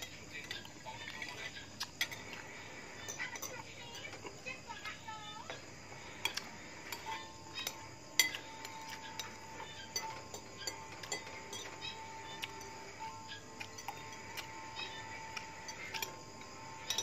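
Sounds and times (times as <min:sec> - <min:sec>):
cutlery clinking on plates: 0:00.0 - 0:02.4, 0:06.2 - 0:17.0.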